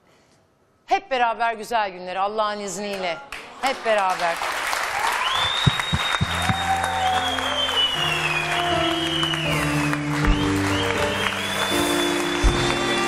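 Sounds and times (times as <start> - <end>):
hands clapping in applause: 3.3 - 13.0
background music: 6.0 - 13.0.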